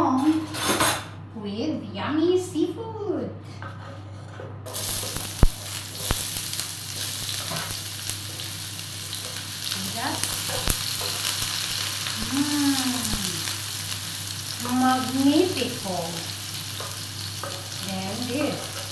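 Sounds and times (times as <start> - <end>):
wooden spatula scraping pan: 3.5 - 5.1
onions sizzling in oil: 4.7 - 18.9.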